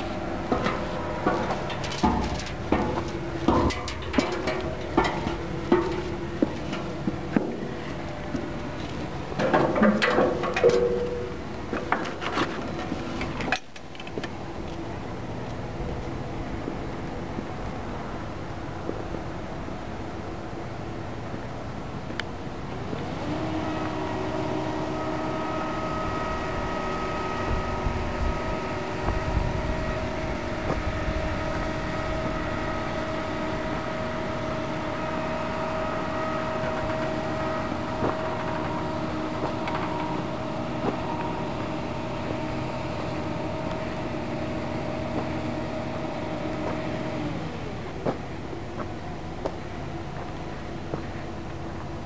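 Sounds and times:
heavy machinery droning whine: 0:00.0 - 0:52.0.

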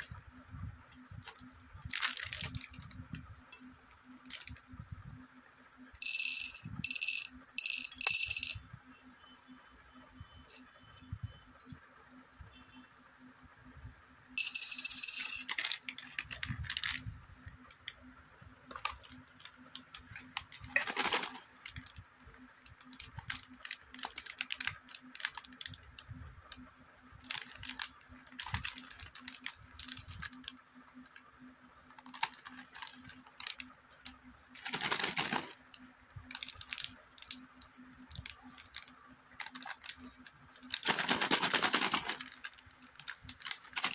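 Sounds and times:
faint steady hum: 0:00.0 - 0:43.9
foil packets crinkling: 0:01.3 - 0:03.0, 0:15.5 - 0:17.0, 0:18.7 - 0:22.0, 0:22.7 - 0:25.8, 0:27.2 - 0:30.6, 0:32.0 - 0:43.9.

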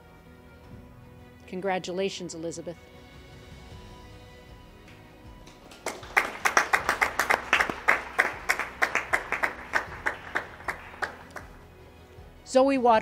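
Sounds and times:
hands clapping: 0:04.8 - 0:11.6.

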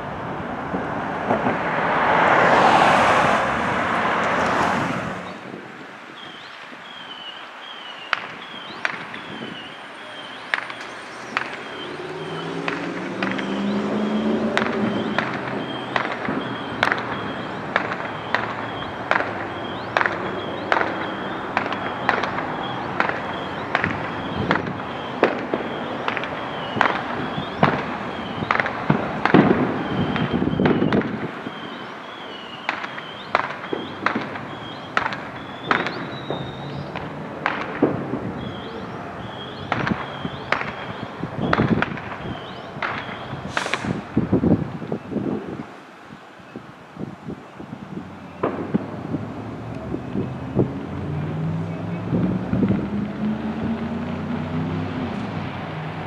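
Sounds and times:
faint high whistle: 0:06.2 - 0:12.6, 0:31.5 - 0:36.9, 0:38.4 - 0:41.6, 0:42.2 - 0:44.0
sharp pops: 0:08.1 - 0:31.8, 0:32.5 - 0:44.5.

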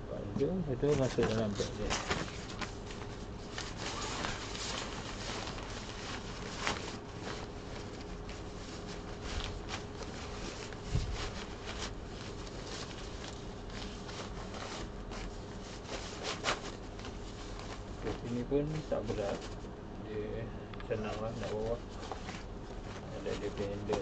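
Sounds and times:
fabric bag rustling: 0:00.8 - 0:19.6.

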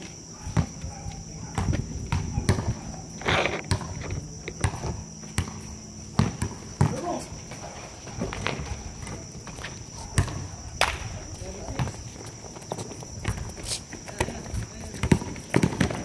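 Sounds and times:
high insect trill: 0:00.0 - 0:16.0
players' footsteps: 0:00.0 - 0:16.0
basketball bouncing on hard court: 0:00.6 - 0:02.8, 0:03.7 - 0:07.1, 0:08.2 - 0:10.5, 0:11.6 - 0:16.0.

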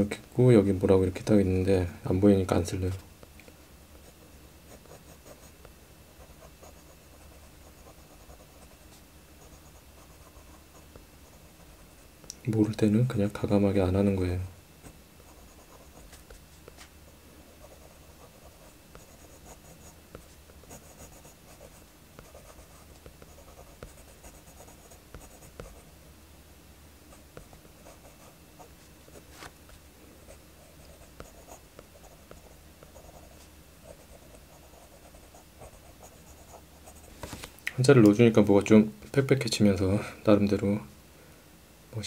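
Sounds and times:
pencil scratching on paper: 0:06.2 - 0:12.0, 0:15.2 - 0:16.9, 0:17.5 - 0:25.8, 0:30.3 - 0:37.2.

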